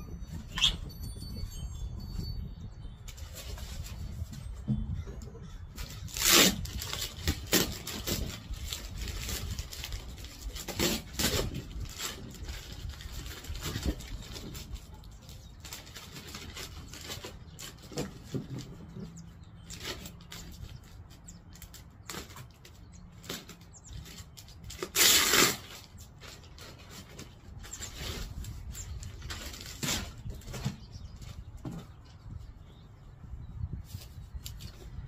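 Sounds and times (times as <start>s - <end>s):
plastic bag crinkling: 5.9s - 18.7s.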